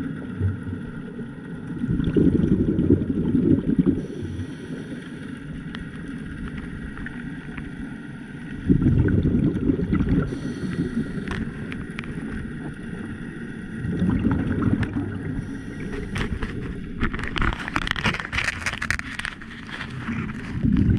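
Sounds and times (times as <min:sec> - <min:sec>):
crackling fizzing bubbles: 0:00.0 - 0:20.9
scuba diver breathing underwater: 0:02.1 - 0:05.4, 0:08.7 - 0:12.0, 0:13.8 - 0:16.9.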